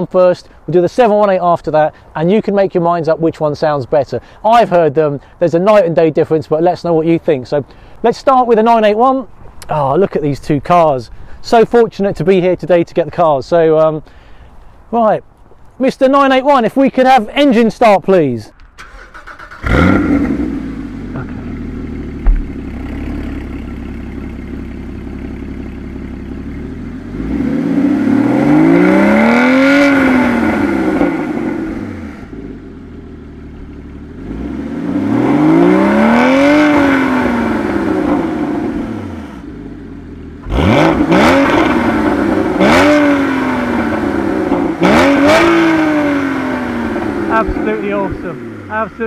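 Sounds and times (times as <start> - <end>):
car exhaust idling and revving: 18.6 - 49.0
sharp knock: 22.2 - 22.7.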